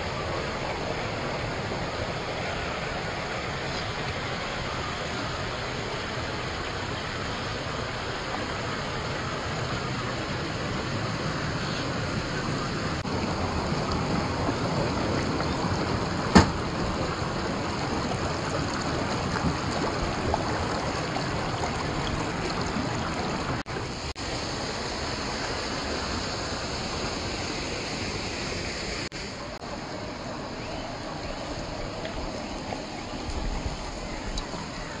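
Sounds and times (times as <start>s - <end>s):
creek water rushing over rock: 0.0s - 35.0s.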